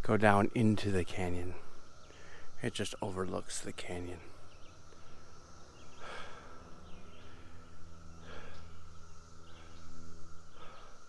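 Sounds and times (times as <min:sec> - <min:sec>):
insect chorus drone: 0:00.0 - 0:11.0
heavy breathing: 0:05.8 - 0:11.0.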